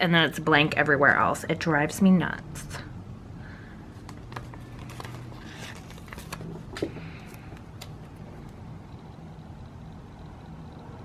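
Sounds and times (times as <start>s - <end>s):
steady low hum: 0.0s - 11.0s
paper rustling: 3.9s - 8.2s.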